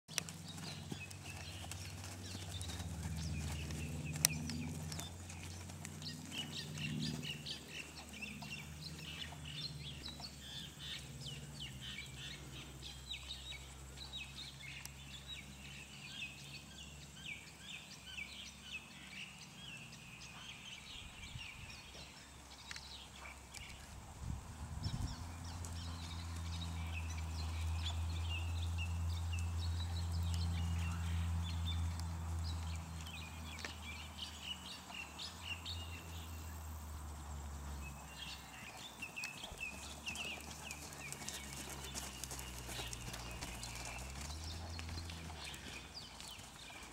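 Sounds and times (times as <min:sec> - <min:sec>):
low outdoor rumble: 0:00.1 - 0:14.2, 0:23.6 - 0:46.9
birds chirping and singing: 0:00.1 - 0:24.0, 0:24.8 - 0:36.8, 0:37.6 - 0:46.9.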